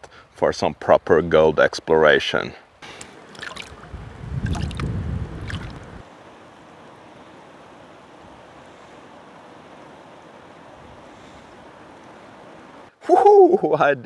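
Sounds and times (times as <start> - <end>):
faint steady hiss: 0.0 - 14.0
water sloshing and splashing: 2.8 - 6.0
low rumbling: 3.5 - 6.0.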